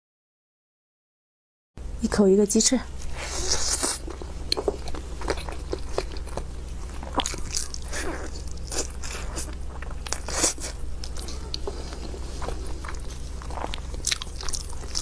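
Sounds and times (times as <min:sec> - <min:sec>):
person biting and chewing food: 0:03.0 - 0:15.0.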